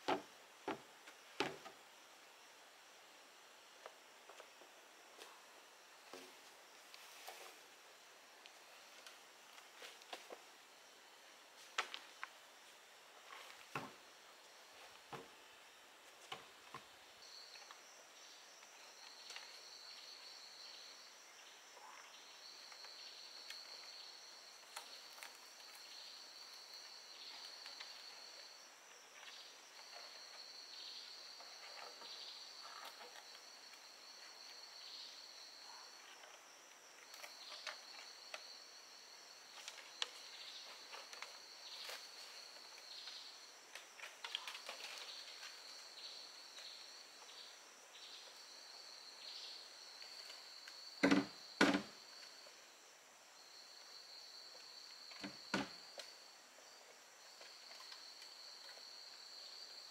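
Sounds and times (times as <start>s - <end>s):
bamboo poles knocking: 0.0s - 1.8s, 51.0s - 51.9s
insects buzzing: 0.0s - 59.9s.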